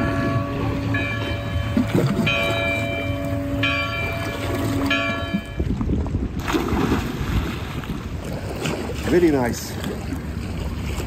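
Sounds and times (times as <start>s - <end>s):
church bell tolling: 0.0s - 5.6s.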